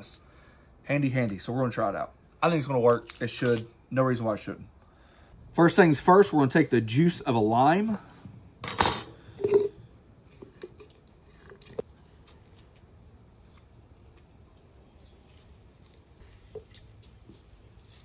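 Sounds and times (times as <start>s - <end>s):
lime squishing: 15.2s - 18.0s.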